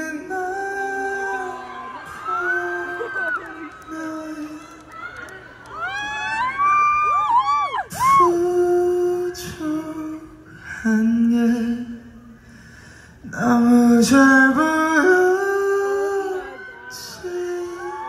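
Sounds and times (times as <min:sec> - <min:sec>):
person singing into a microphone: 0:00.0 - 0:04.9, 0:07.9 - 0:12.4, 0:13.2 - 0:18.0.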